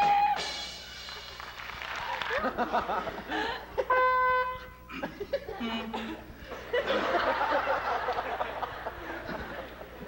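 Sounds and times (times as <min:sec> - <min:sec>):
trumpet notes: 0:03.9 - 0:04.9.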